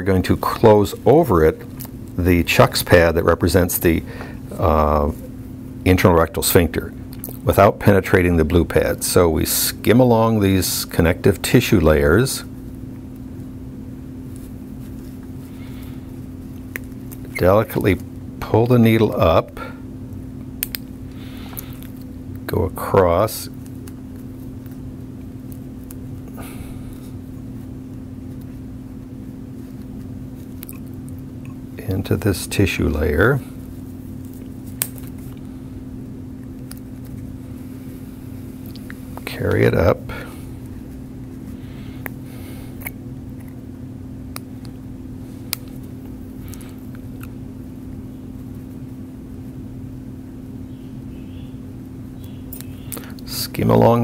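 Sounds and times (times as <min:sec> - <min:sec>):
low electrical hum: 0:00.0 - 0:54.0
soft rustle of pad: 0:14.2 - 0:16.5.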